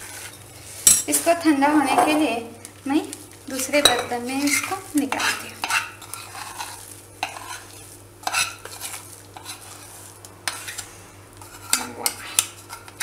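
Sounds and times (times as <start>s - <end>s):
spoon scraping pan: 0.0s - 2.2s, 3.6s - 13.0s
spoon knocking on metal pan: 3.8s - 4.2s.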